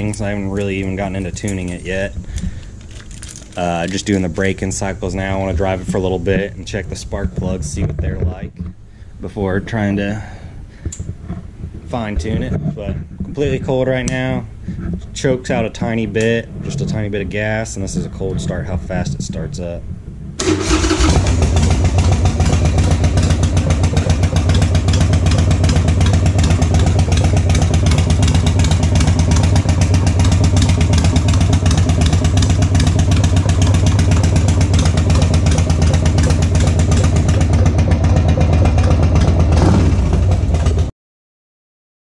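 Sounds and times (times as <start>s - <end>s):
motorcycle engine idling: 20.0s - 40.9s.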